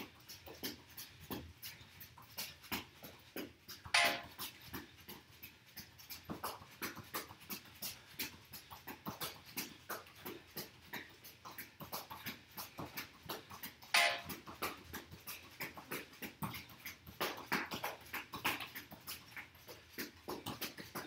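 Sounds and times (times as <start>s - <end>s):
ball tapped between sneakers: 0.0s - 21.0s
shoe squeak: 3.9s - 4.3s.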